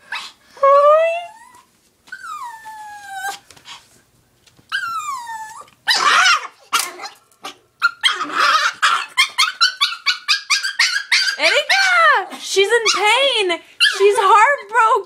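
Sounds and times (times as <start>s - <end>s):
dog whining and yelping: 1.2s - 3.8s, 4.7s - 7.2s, 7.8s - 12.2s, 13.8s - 14.2s.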